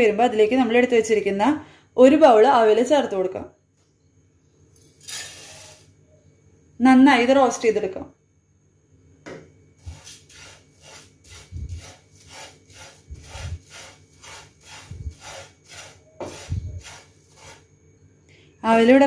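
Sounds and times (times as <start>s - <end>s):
spatula scraping frying pan: 5.0s - 5.9s, 9.8s - 17.7s.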